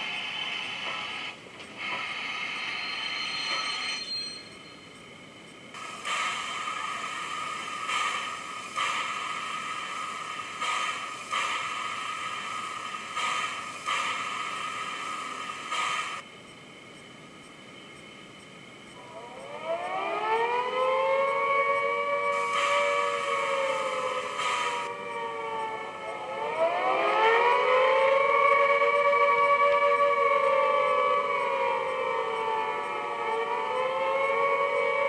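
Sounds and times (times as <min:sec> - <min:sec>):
model locomotive running sounds: 0:00.0 - 0:04.4, 0:05.5 - 0:16.2, 0:18.8 - 0:35.0
loud steady steam hiss: 0:00.0 - 0:35.0
brief high squeal: 0:02.7 - 0:04.9.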